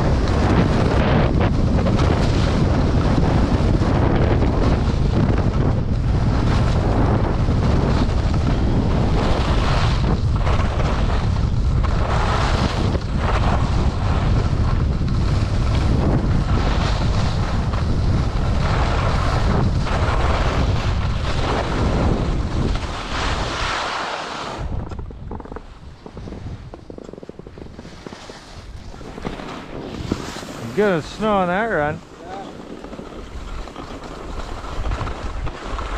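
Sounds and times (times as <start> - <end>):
wind buffeting microphone: 0.0 - 35.9
skis hissing over snow: 6.1 - 24.8, 27.8 - 35.9.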